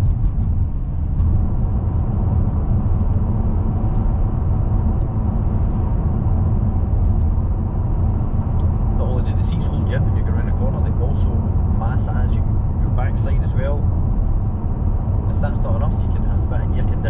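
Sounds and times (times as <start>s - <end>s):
car engine rumble: 0.0s - 17.0s
road and tyre noise: 0.0s - 17.0s.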